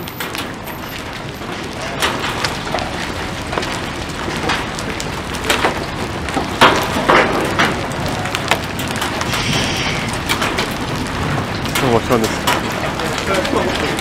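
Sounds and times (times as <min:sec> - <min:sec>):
hail and rain hissing: 0:00.0 - 0:14.0
hailstones cracking on pavement: 0:00.0 - 0:14.0.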